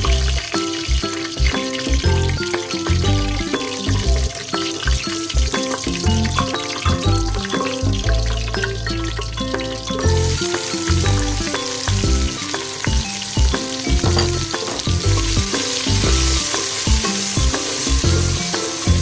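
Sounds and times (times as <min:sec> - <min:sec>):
background music with a beat: 0:00.0 - 0:19.0
onions sizzling in hot oil: 0:00.0 - 0:19.0
spoon stirring in a pot: 0:14.0 - 0:18.0.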